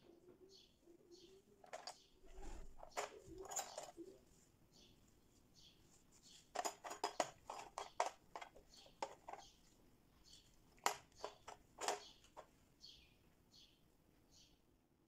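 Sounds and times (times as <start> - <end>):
cookie cutters clattering in tray: 2.8 - 4.1, 6.6 - 9.5, 10.8 - 12.4.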